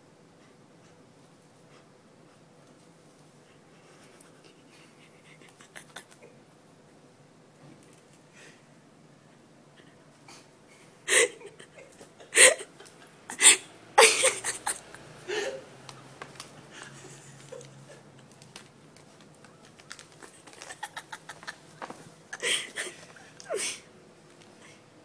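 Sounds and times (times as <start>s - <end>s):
stifled breathy laughter: 3.9s - 6.4s, 9.8s - 15.7s, 16.6s - 18.1s, 20.2s - 23.8s
plastic bag crinkling: 17.4s - 22.1s.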